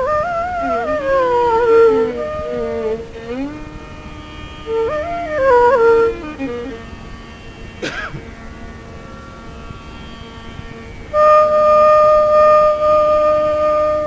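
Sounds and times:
bamboo flute melody: 0.0 - 7.0, 11.1 - 14.0
steady drone: 0.0 - 14.0.

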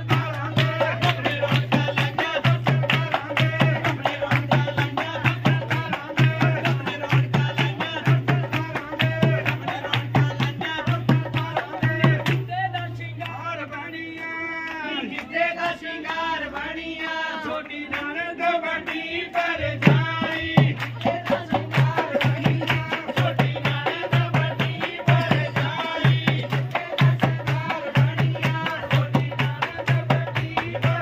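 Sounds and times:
hand-drum beat: 0.0 - 13.0, 19.7 - 31.0.

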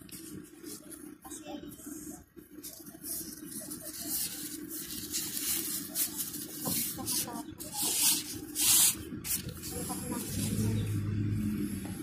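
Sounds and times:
low hum: 8.3 - 12.0.

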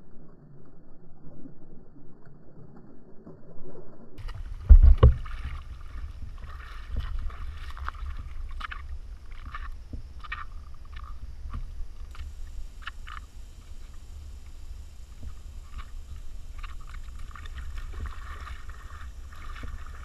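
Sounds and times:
low steady rumble: 4.2 - 20.0
water splashing and sloshing: 4.2 - 20.0.

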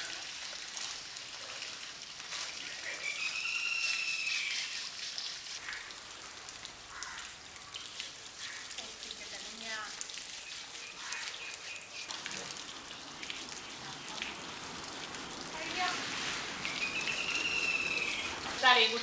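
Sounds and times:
hose water spraying and splashing: 0.0 - 19.0
high whistle-like tone: 3.2 - 4.8, 16.8 - 18.3
hand scrubbing wet hide: 3.8 - 5.9.

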